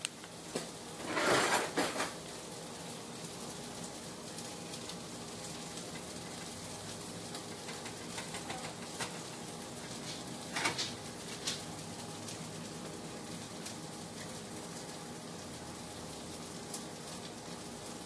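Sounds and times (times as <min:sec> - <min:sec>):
faint kitchen hiss: 0:00.0 - 0:18.0
utensils clicking and tapping: 0:07.3 - 0:09.4.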